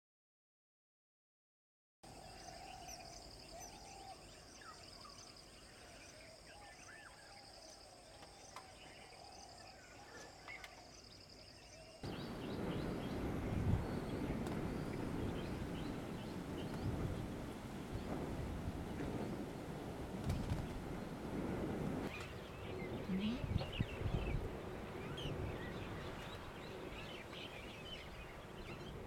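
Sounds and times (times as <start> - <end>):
bird calls: 2.1 - 18.2, 22.1 - 29.0
low rumbling noise: 12.0 - 29.0.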